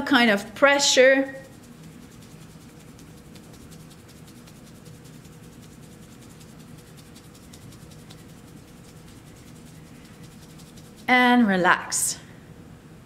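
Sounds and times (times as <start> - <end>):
low steady hum: 0.0 - 13.0
palm brushing on fabric: 1.4 - 11.1.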